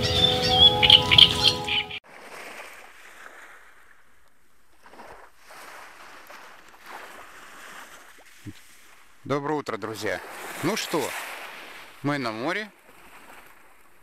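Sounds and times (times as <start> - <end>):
music: 0.0 - 2.0
small waves washing onto shore: 1.5 - 14.0.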